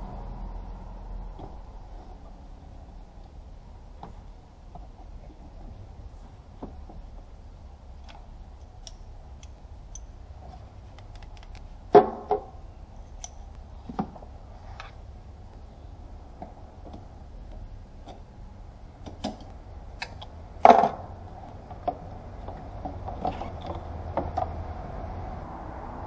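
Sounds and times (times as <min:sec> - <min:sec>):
socket wrench clicking: 0:13.1 - 0:13.6.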